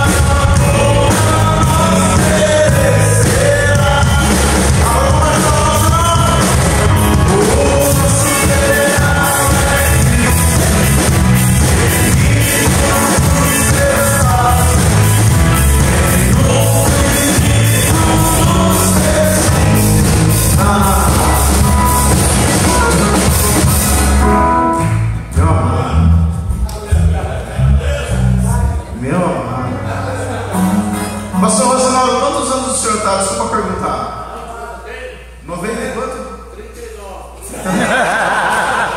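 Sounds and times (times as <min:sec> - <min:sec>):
man singing: 0:00.0 - 0:23.2
rock band playing: 0:00.0 - 0:33.4
bass line: 0:00.0 - 0:34.3.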